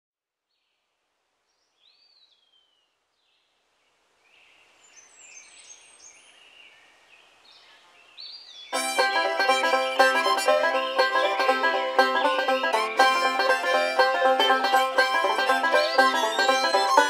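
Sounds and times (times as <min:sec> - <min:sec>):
outdoor nature ambience: 0:00.2 - 0:17.0
plucked banjo tune: 0:08.8 - 0:17.0.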